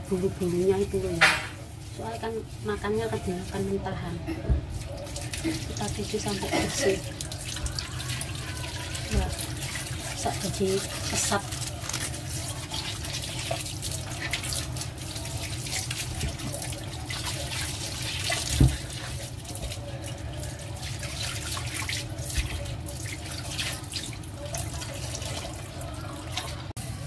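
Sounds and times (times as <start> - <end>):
cucumbers rubbed under water: 0.1 - 3.9
tap water splashing into sink: 1.2 - 1.6, 4.5 - 20.2, 20.8 - 26.6.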